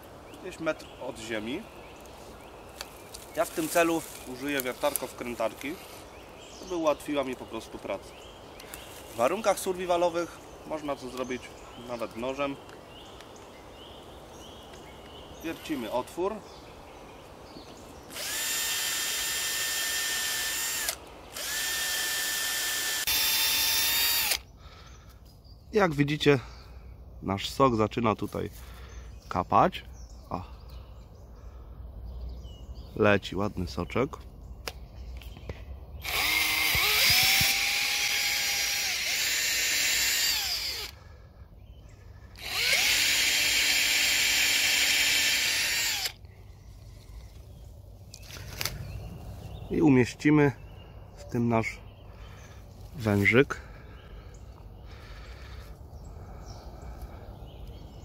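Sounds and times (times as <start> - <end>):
cordless drill whining: 18.1 - 24.5, 36.0 - 41.0, 42.3 - 46.2.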